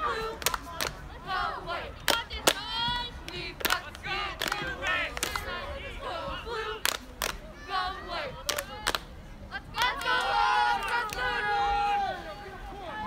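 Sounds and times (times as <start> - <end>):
voices shouting and calling: 0.0 - 13.0
sharp claps: 0.4 - 1.0, 2.1 - 2.6, 3.3 - 5.5, 6.8 - 7.4, 8.5 - 9.1.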